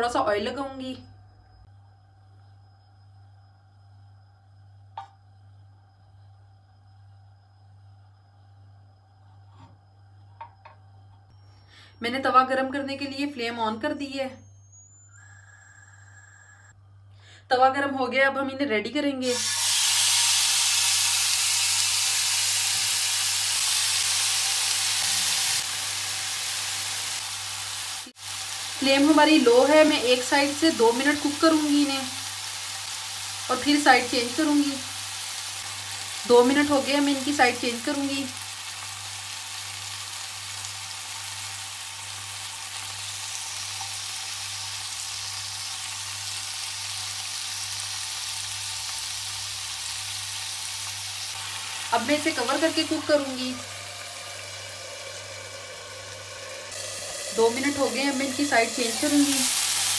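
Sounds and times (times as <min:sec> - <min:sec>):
chicken sizzling in oil: 0:19.2 - 0:59.9.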